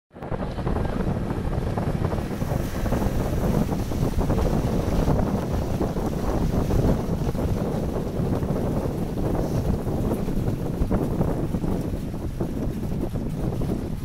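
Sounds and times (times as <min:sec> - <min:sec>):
wind buffeting microphone: 0:00.1 - 0:14.0
sea water washing: 0:00.5 - 0:14.0.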